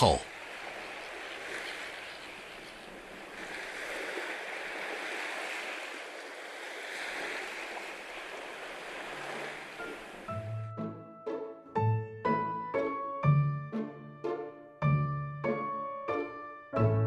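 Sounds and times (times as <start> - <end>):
sea waves washing on shore: 0.0 - 10.4.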